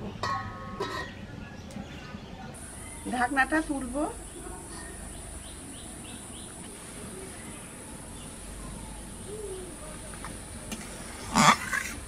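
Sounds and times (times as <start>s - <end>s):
bird chirp: 0.8s - 9.7s
crickets droning: 2.6s - 12.0s.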